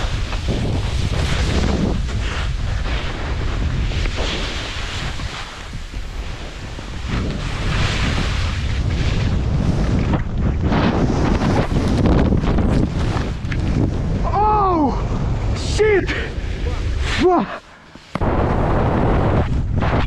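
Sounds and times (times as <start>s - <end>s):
skis scraping through snow: 0.0s - 14.2s, 16.1s - 20.0s
wind buffeting microphone: 0.0s - 17.5s, 18.1s - 20.0s.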